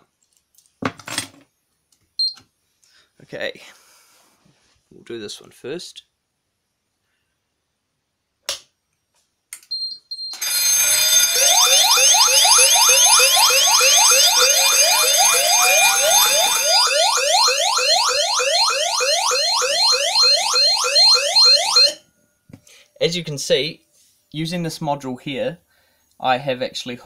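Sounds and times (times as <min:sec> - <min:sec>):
electronic siren rapid sweeps: 0:10.4 - 0:22.0
high pulsing beep: 0:10.4 - 0:22.0.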